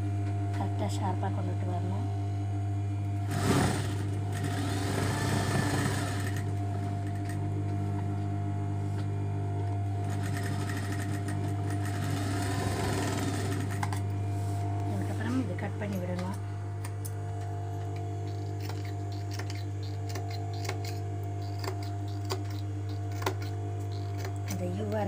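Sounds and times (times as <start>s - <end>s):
sewing machine stitching: 3.3s - 7.3s, 10.0s - 14.0s.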